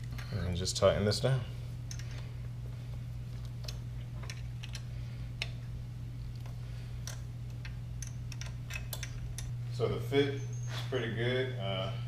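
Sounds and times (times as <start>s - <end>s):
steady low hum: 0.0s - 12.0s
wrench clicking: 7.0s - 9.5s.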